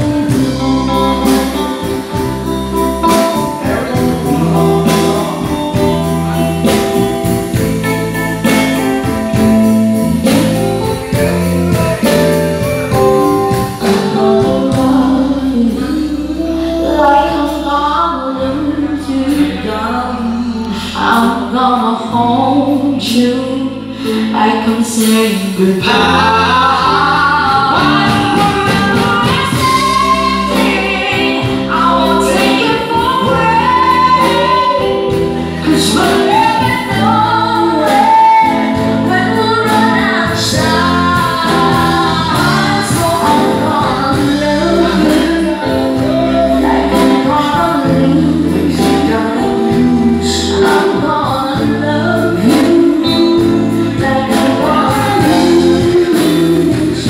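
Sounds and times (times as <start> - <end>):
drums with steady beat: 0.0 - 15.7, 25.0 - 57.0
electric guitar: 0.0 - 57.0
keyboard: 0.0 - 57.0
people singing together: 25.8 - 37.2, 37.8 - 51.0.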